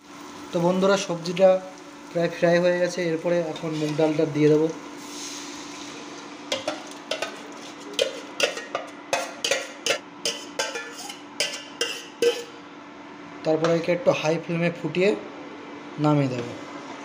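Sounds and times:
ladle clinking against steel pot: 8.0s - 12.5s.

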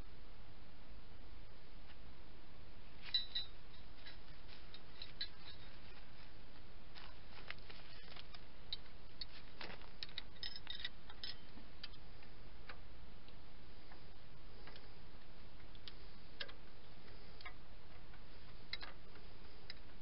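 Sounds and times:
steady background hiss: 0.0s - 20.0s
metallic clicks from tools: 10.0s - 12.0s.

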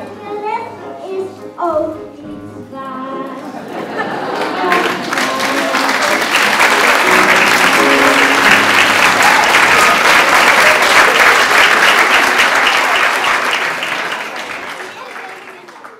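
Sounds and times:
backing music: 0.0s - 13.8s
audience applauding: 4.0s - 15.9s.

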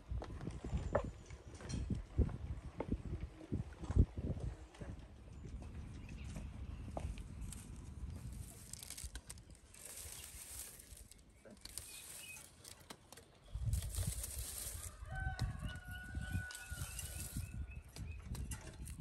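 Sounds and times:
rooster crowing: 14.8s - 17.4s.

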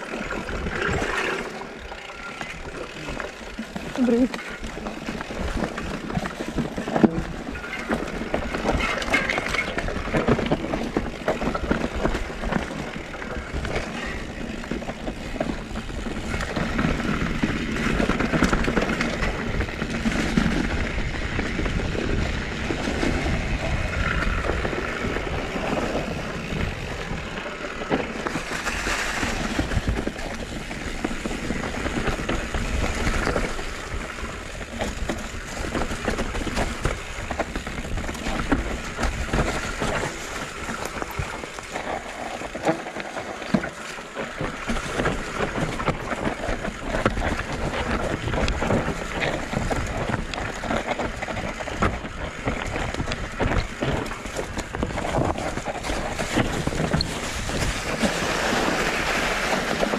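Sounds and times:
bike knocks and rattles: 0.0s - 59.9s
bike tyres rolling over dirt: 0.0s - 59.9s.

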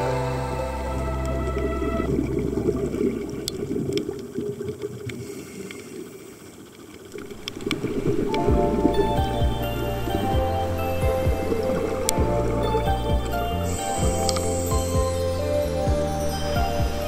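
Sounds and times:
music: 0.0s - 3.1s, 8.3s - 17.0s
muffled bubbling rush of water: 0.0s - 17.0s
faint clicks: 3.4s - 8.4s.

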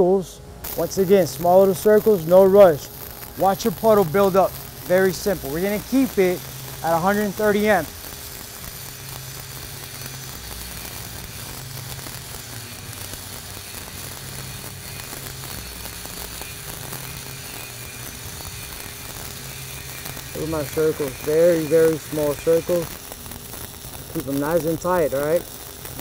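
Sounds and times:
arc welding crackle and hiss: 0.0s - 26.0s.

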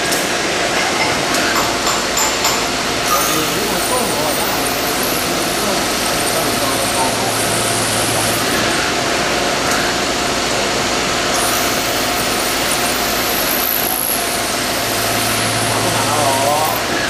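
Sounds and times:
coolant spray hissing: 3.1s - 8.7s, 11.3s - 17.0s.

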